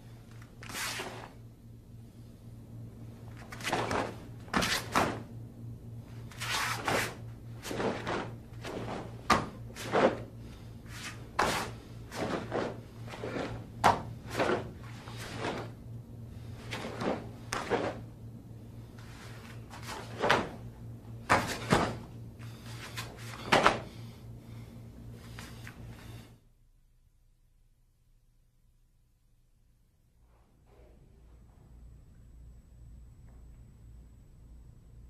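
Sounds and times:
steady low hum: 0.0 - 35.0
bare feet landing on mat: 3.4 - 5.3, 6.4 - 10.3, 11.0 - 15.8, 16.7 - 18.0, 19.6 - 20.6, 21.2 - 22.1, 22.9 - 23.9.

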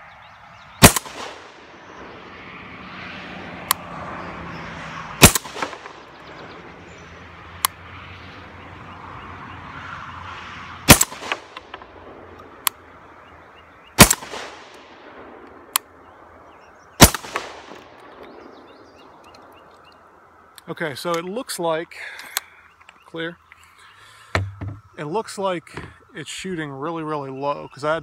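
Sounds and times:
shotgun shots: 0.8 - 2.2, 5.2 - 6.2, 10.8 - 12.1, 14.0 - 15.4, 17.0 - 18.4
faint sharp cracks: 5.2 - 6.2.

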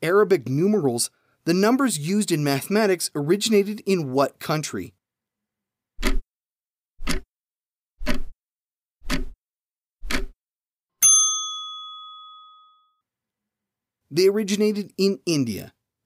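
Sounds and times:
clock ticking: 6.0 - 6.2, 7.0 - 7.3, 8.0 - 8.3, 9.0 - 9.4, 10.0 - 10.4
bell ding: 11.0 - 13.0.

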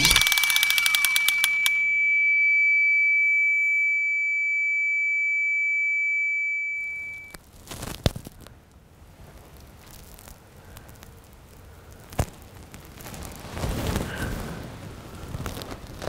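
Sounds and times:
sharp click: 0.0 - 2.0
high-pitched ringing tone: 0.0 - 7.4.

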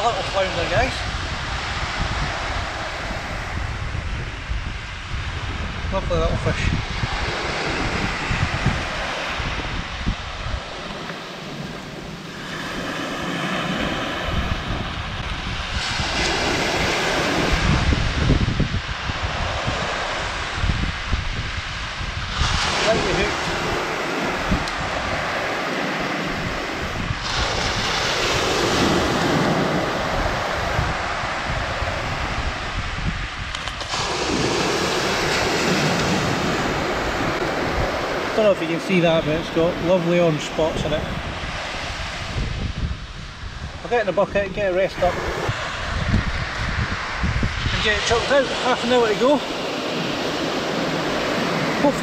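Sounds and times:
small waves washing on sand: 0.0 - 52.0
wind buffeting microphone: 0.0 - 52.0
small surf breaking: 6.5 - 42.6.

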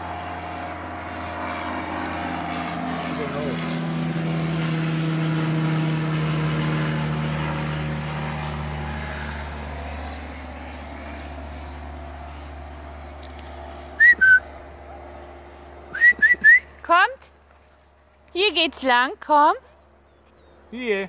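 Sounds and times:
propeller aircraft engine drone: 0.0 - 21.0
short high whistles: 14.0 - 14.5, 15.9 - 16.8.

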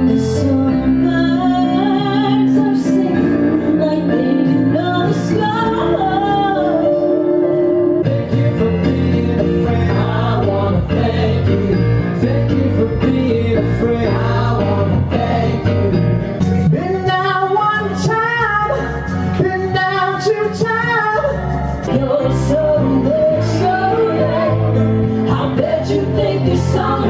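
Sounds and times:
voices singing in harmony: 0.0 - 16.2, 21.8 - 27.0
live rock band playing: 14.2 - 27.0.

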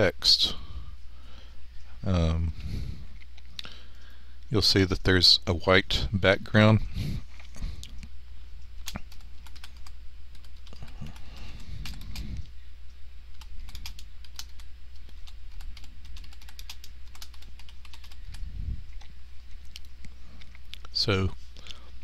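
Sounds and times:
constant low hum: 0.0 - 22.0
keyboard typing clicks: 8.8 - 11.2, 13.3 - 18.4.

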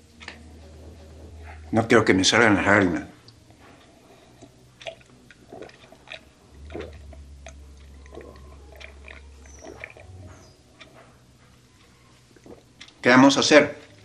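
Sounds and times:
person gulping and swallowing: 3.2 - 11.0, 11.8 - 13.0.

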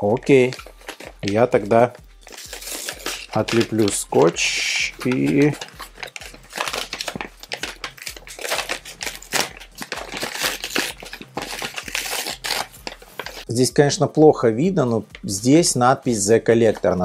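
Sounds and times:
paper wrapping crinkling: 0.0 - 13.5
tape peeling: 0.0 - 13.5.

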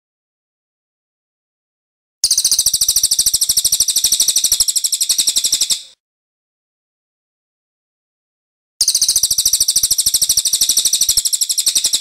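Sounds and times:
songbird trilling: 2.2 - 6.0, 8.8 - 12.0.

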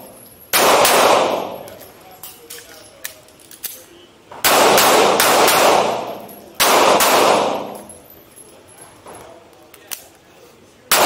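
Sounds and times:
handgun shots echoing indoors: 0.0 - 8.0.

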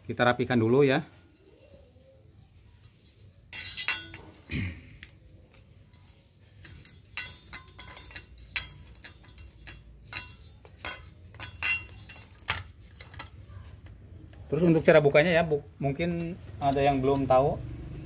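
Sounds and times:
metal scrape: 0.9 - 4.5, 6.4 - 13.7
metal frame clicking and clinking: 2.8 - 4.5, 6.0 - 13.7, 15.9 - 18.0.

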